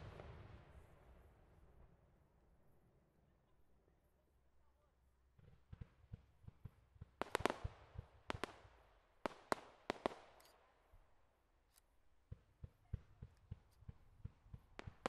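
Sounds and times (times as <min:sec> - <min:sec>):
fireworks thumping: 0:05.4 - 0:08.6, 0:12.2 - 0:15.0
fireworks bursting cracks: 0:05.4 - 0:10.6, 0:12.3 - 0:15.0.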